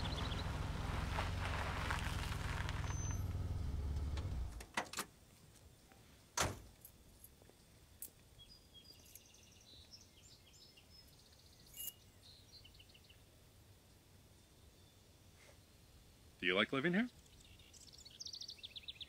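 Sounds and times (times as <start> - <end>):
small birds chirping: 0.0 - 1.2, 1.8 - 3.4, 7.5 - 19.0
car engine idling: 0.0 - 4.6.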